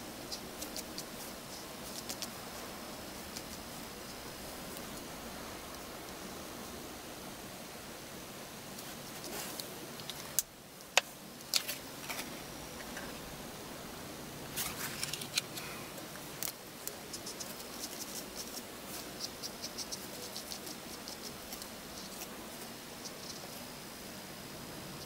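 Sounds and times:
brush marker scratching on paper: 17.1 - 23.6.

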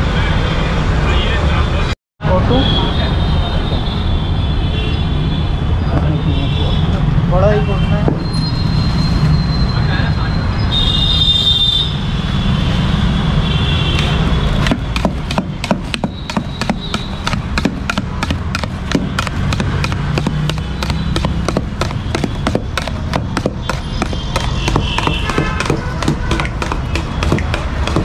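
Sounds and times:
knife chopping in steel pot: 14.6 - 28.0.

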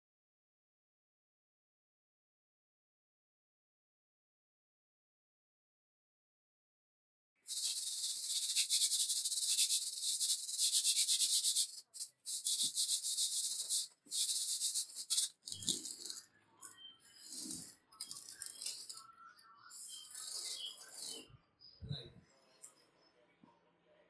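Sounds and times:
sandpaper scraping steel: 7.5 - 19.1, 19.7 - 21.2.

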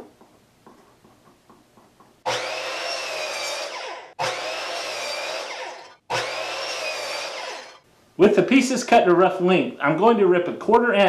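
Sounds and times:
miter saw motor whining: 2.3 - 7.8
saw blade winding down: 2.3 - 7.8.

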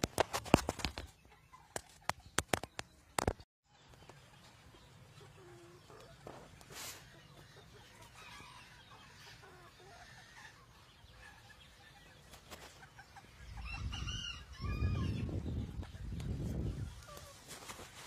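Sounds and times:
chickens clucking softly: 0.5 - 18.0.

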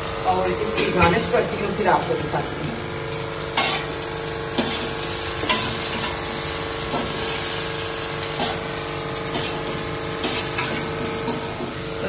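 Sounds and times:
onions sizzling in oil: 0.0 - 12.0
metal spoon scraping pan: 3.6 - 3.9, 9.3 - 11.5.

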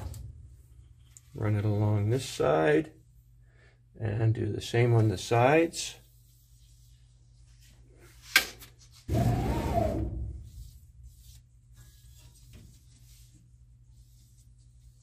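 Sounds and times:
paintbrush brushing a rail: 4.6 - 8.2, 10.3 - 15.0.

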